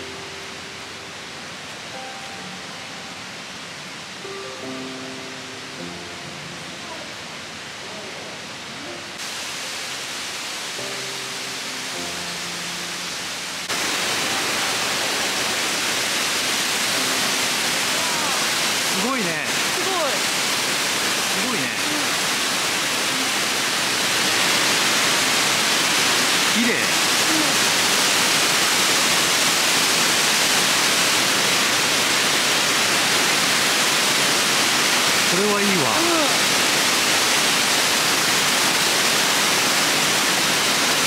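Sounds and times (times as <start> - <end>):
waterfall rushing: 0.0 - 41.0.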